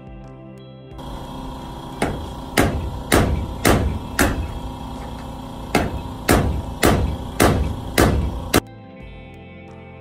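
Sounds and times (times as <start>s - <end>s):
sustained synth pad: 1.0s - 8.6s
heavy drum hits: 2.0s - 4.6s, 5.7s - 8.6s.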